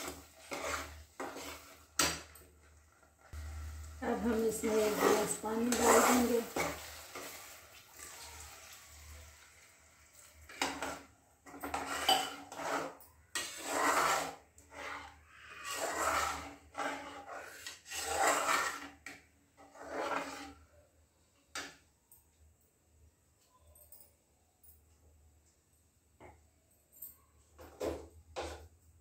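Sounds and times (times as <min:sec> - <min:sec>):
spatula scraping metal pot: 0:00.0 - 0:03.5, 0:04.1 - 0:08.2, 0:10.2 - 0:20.8.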